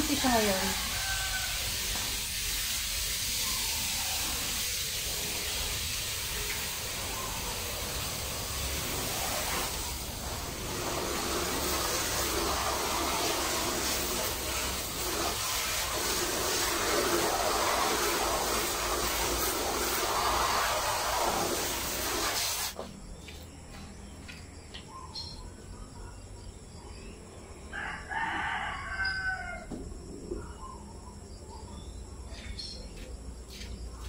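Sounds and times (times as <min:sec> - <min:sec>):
water spraying from hose: 0:00.0 - 0:22.9.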